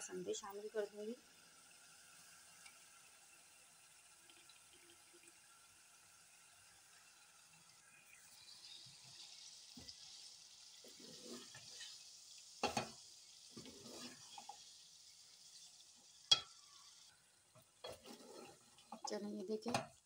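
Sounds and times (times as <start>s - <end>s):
meat sizzling in oil: 0.0s - 20.0s
spatula scraping and knocking pot: 12.6s - 14.6s, 17.8s - 20.0s.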